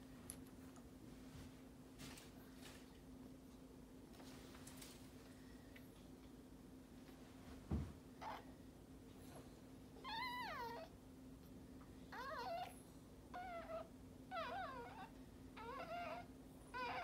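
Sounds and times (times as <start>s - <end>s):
puppy squealing: 10.0s - 10.9s, 13.4s - 17.0s.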